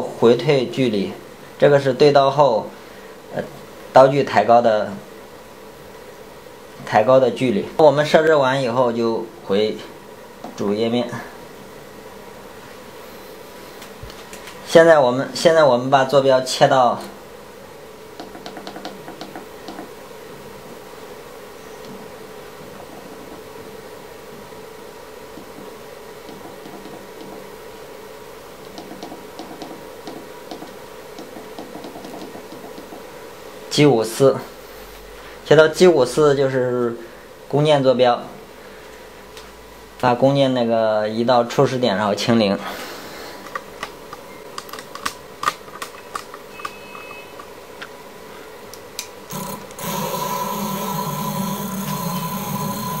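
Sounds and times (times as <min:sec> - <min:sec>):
electrical hum: 0:00.0 - 0:53.0
irregular clicks: 0:28.6 - 0:33.0
stepper motors whining: 0:49.3 - 0:53.0.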